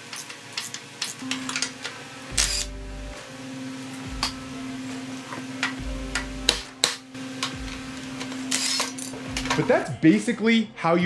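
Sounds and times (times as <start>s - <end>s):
low hum: 1.2s - 9.6s.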